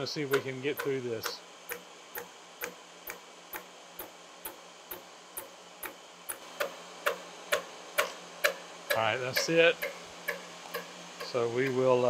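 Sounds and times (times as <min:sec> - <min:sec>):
faint machine hum: 0:00.0 - 0:12.0
cutter tooth ticking on metal: 0:06.6 - 0:11.3.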